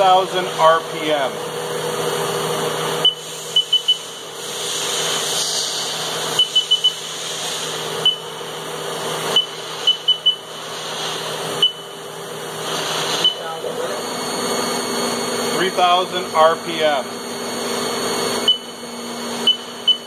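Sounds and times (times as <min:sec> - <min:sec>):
milling machine spindle humming: 0:00.0 - 0:20.0
short high beeps: 0:03.0 - 0:04.1, 0:09.4 - 0:10.4, 0:13.2 - 0:13.6, 0:18.5 - 0:18.8.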